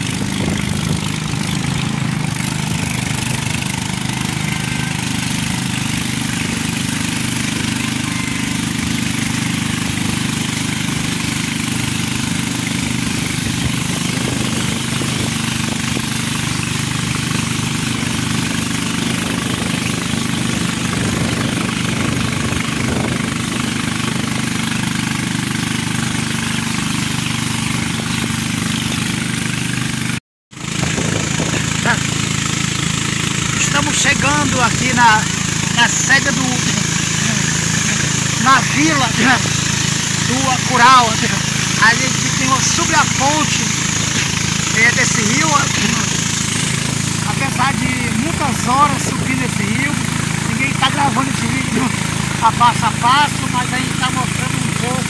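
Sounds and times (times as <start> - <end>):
boat engine droning: 0.0 - 55.0
water against hull: 0.0 - 55.0.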